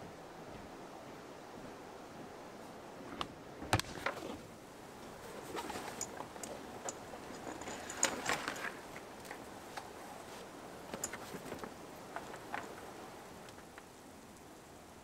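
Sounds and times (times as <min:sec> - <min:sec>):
canvas and rope rustling: 0:03.8 - 0:13.8.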